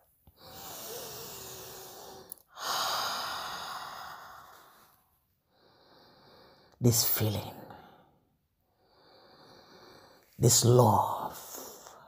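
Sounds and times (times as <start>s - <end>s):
woman breathing deeply: 0.3s - 6.8s, 8.7s - 10.3s.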